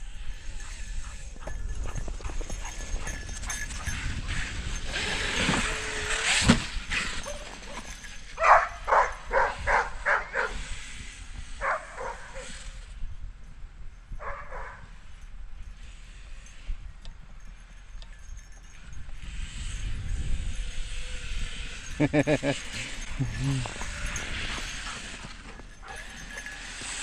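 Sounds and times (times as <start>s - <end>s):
dog barking: 8.4s - 10.6s, 11.6s - 12.5s, 14.2s - 14.8s.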